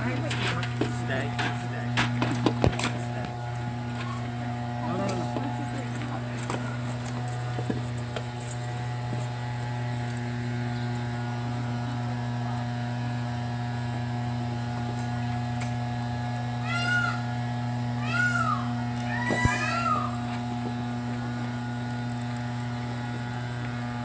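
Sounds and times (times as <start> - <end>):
low hum of held tones: 0.0 - 24.0
rising and falling animal calls: 16.6 - 17.4, 18.0 - 20.3.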